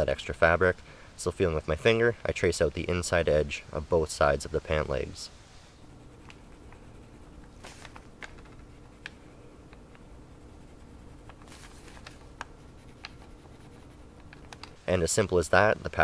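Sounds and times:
faint steady hum: 0.0s - 16.0s
pencil ticks: 6.1s - 7.4s, 8.8s - 14.8s
paper rustling: 6.2s - 9.2s, 10.6s - 14.8s.

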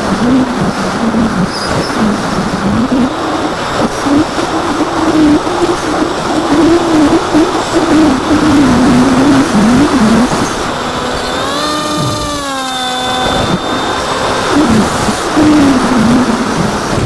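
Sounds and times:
wind rush over microphone: 0.0s - 17.0s
electric motor whine: 6.2s - 17.0s.

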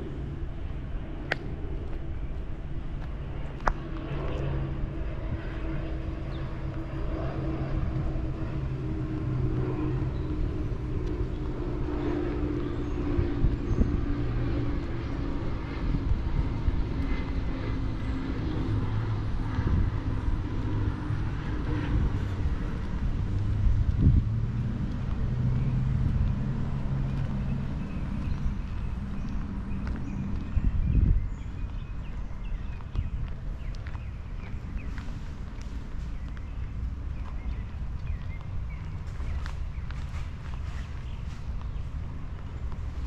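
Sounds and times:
engines humming: 0.0s - 43.0s.

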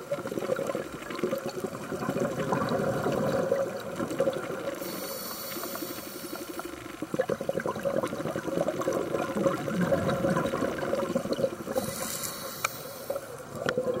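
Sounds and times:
bubbling exhale underwater: 0.0s - 14.0s
hissing regulator inhale: 4.8s - 6.9s, 11.7s - 13.4s.

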